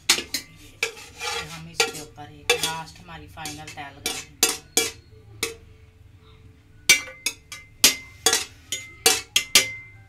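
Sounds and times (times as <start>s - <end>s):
metal cookware clinking: 0.0s - 5.7s, 6.9s - 10.0s.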